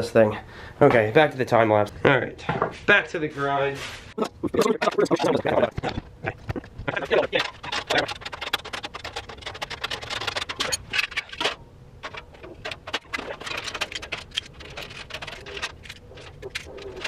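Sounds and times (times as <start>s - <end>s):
rapid clicking of metal parts and tools: 7.0s - 17.0s.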